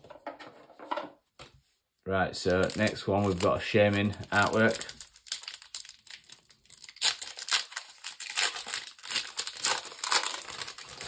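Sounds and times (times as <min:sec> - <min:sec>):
foil wrapper crinkling and tearing: 0:02.4 - 0:11.0.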